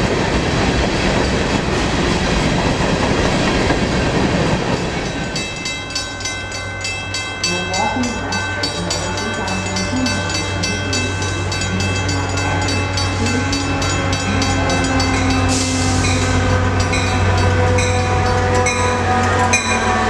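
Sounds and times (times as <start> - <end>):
diesel locomotive engine hum: 0.0 - 20.0.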